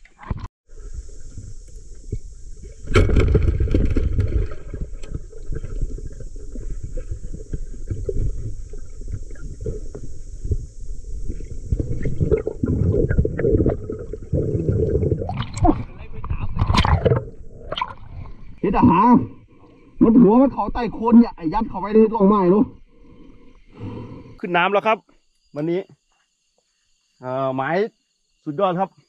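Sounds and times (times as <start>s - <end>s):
bubble crackles and clicks: 0.1s - 19.0s
low rumble of moving water: 0.7s - 24.4s.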